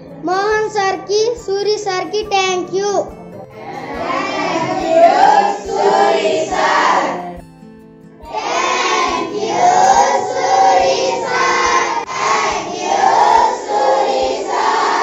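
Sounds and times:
children singing in unison: 3.6s - 7.4s, 8.3s - 15.0s.

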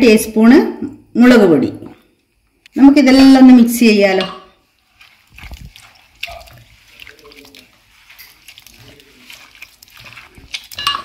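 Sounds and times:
hand squelching wet food: 4.6s - 11.0s.

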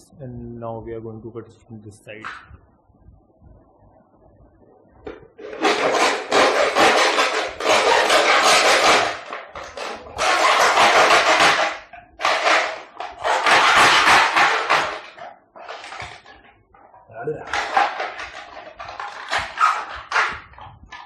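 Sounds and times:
hacksaw sawing through plastic: 5.5s - 15.2s.

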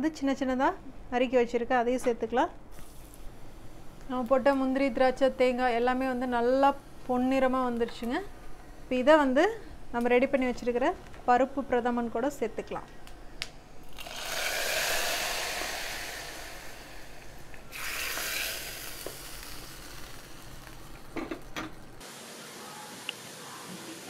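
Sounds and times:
hot oil sizzling in a pot: 2.7s - 9.6s, 13.8s - 22.2s.

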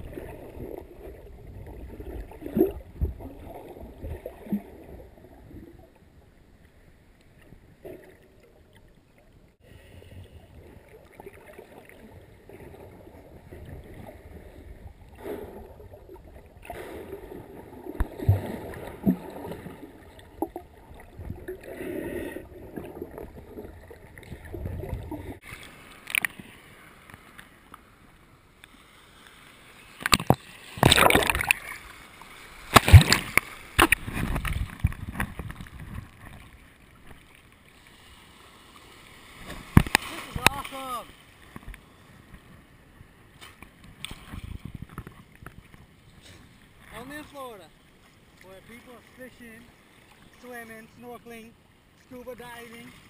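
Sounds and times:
underwater knocks and gurgles: 0.0s - 6.2s, 10.5s - 26.5s, 30.0s - 31.7s, 32.7s - 37.4s, 39.5s - 40.6s, 43.6s - 45.9s
water splashing and sloshing: 0.0s - 53.0s
muffled underwater rumble: 7.4s - 25.4s.

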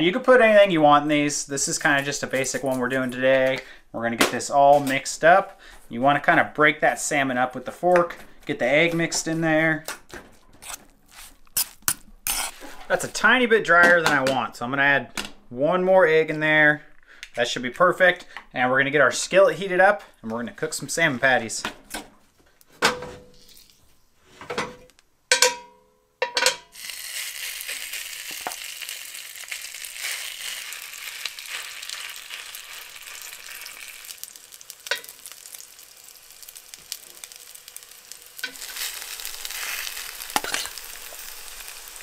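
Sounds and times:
metal clanks of skillet: 24.5s - 26.7s, 34.9s - 35.1s, 40.3s - 40.8s
oil sizzling in a skillet: 26.7s - 42.0s.

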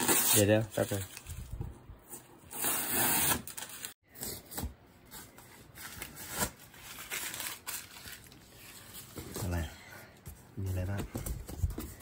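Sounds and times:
packing tape ripping off cardboard: 2.5s - 3.9s.

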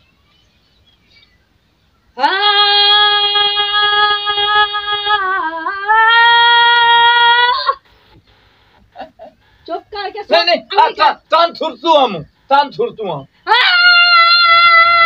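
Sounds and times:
woman singing a high note: 2.2s - 7.7s.

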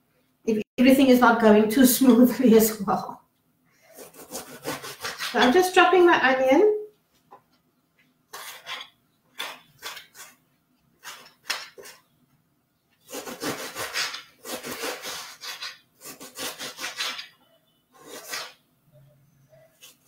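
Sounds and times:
knife slicing onion on glass board: 4.0s - 5.7s, 8.3s - 10.4s, 11.0s - 12.0s, 13.0s - 17.3s, 18.0s - 18.6s.

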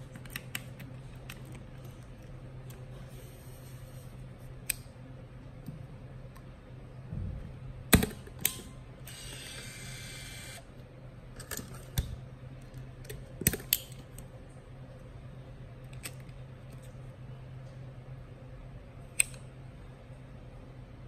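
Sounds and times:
camera motor whir: 9.1s - 10.7s.

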